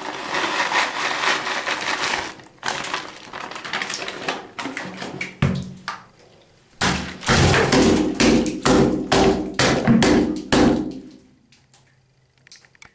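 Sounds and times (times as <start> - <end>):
loud knocks and thumps: 6.8 - 11.1.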